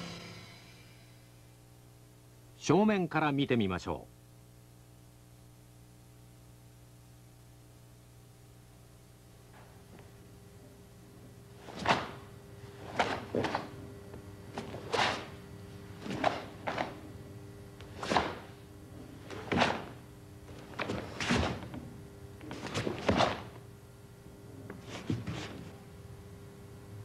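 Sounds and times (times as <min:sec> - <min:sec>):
uniform snapping: 0:11.6 - 0:12.3, 0:17.8 - 0:18.5, 0:19.2 - 0:20.0
bare feet thudding on mat: 0:11.6 - 0:13.8, 0:14.5 - 0:17.1, 0:17.9 - 0:23.6, 0:24.7 - 0:25.8.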